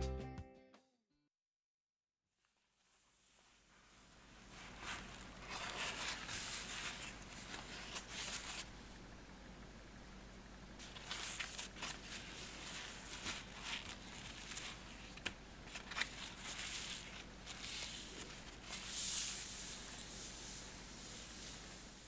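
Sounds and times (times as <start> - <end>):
paper towel wiping a countertop: 2.7 - 8.7, 10.8 - 22.0.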